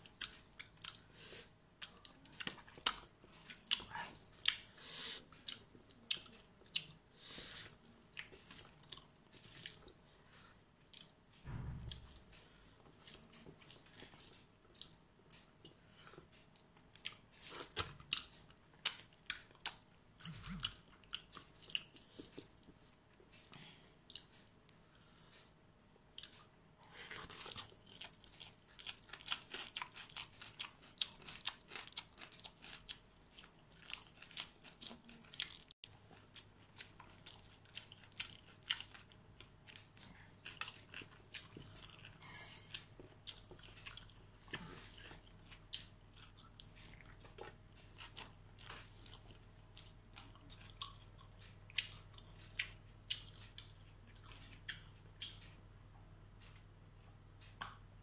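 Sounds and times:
chewing and lip smacks: 27.1s - 55.6s.

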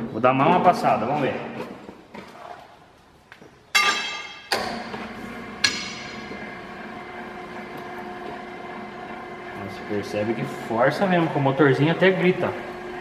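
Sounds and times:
sharp metallic clangs: 3.7s - 4.9s, 5.6s - 6.2s
electric motor whining: 5.1s - 13.0s.

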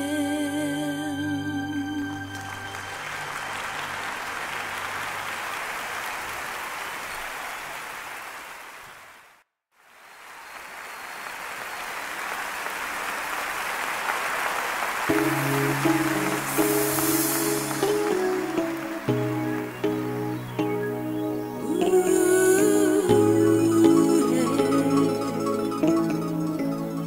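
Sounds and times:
audience applause: 2.4s - 20.6s
song ending: 15.1s - 27.0s.

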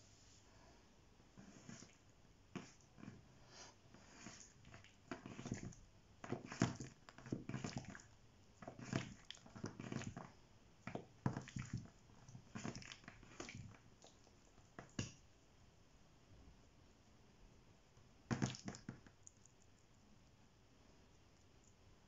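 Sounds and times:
dough squelching and patting: 1.4s - 15.3s, 18.2s - 19.9s.

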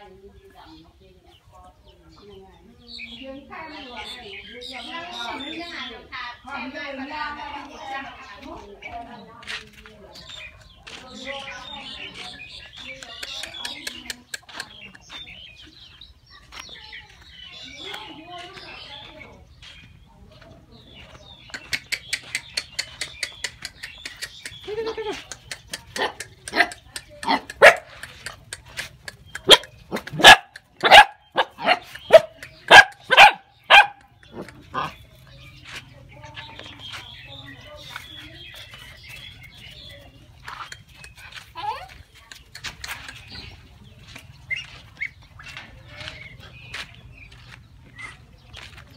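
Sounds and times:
chickens calling: 0.0s - 48.9s
chicks peeping: 0.0s - 48.9s
young dogs barking: 25.9s - 28.0s, 29.4s - 35.1s.

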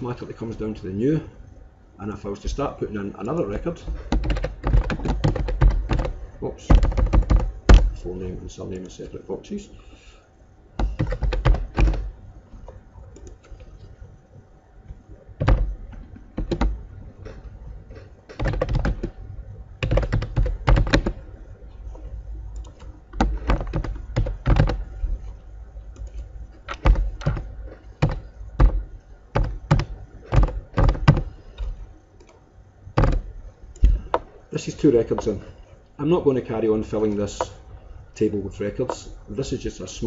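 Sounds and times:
typing on computer keyboard: 3.4s - 8.0s, 10.8s - 12.1s, 15.4s - 19.2s, 19.8s - 21.3s, 22.6s - 25.0s, 26.0s - 32.4s, 33.0s - 34.3s.

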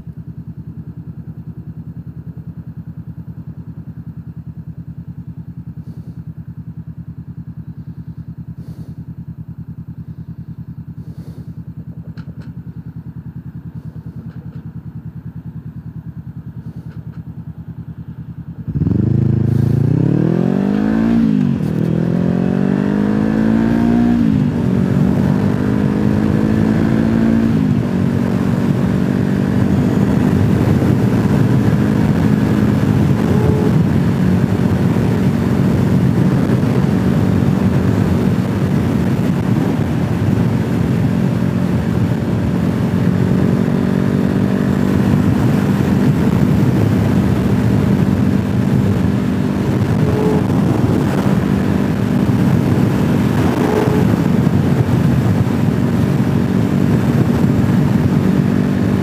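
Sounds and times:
motorcycle engine accelerating: 0.0s - 59.0s
wind noise: 18.7s - 59.0s.

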